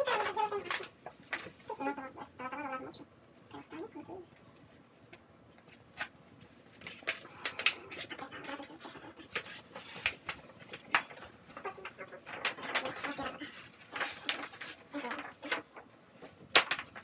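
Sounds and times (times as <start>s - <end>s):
vinyl decal crackling and rustling: 0.0s - 1.8s, 5.5s - 17.0s.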